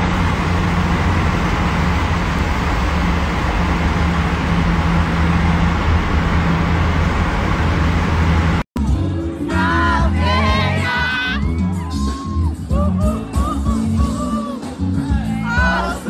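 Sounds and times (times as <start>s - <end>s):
car engine drone: 0.0s - 8.7s
road noise hiss: 0.0s - 8.7s.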